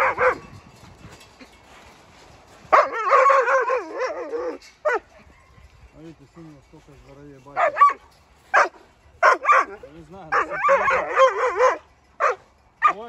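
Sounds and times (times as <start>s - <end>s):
wolf whining: 2.7s - 5.3s.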